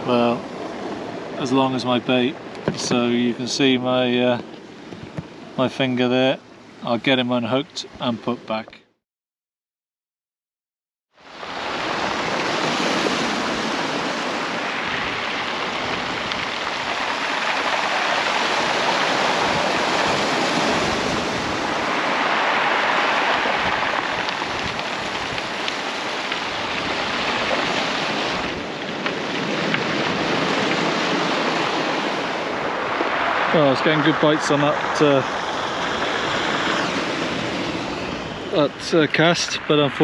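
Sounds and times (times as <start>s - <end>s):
waves washing up stony bank: 11.2s - 40.0s
wind buffeting microphone: 11.4s - 40.0s.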